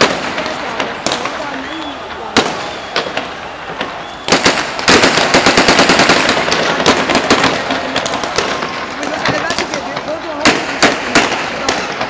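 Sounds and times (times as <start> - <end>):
rapid gunfire: 4.3 - 12.0.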